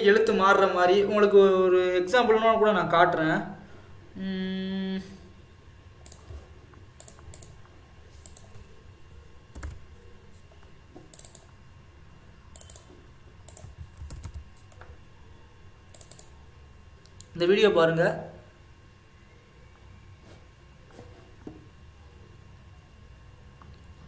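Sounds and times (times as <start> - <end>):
computer mouse clicking: 6.0 - 8.6, 11.0 - 11.5, 12.5 - 14.9, 15.9 - 16.4.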